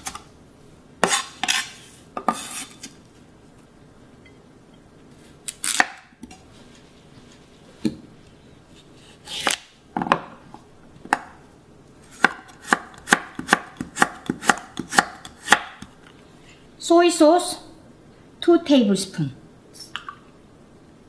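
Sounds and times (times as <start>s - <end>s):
knife slicing carrot on board: 1.0s - 2.9s, 12.2s - 15.9s.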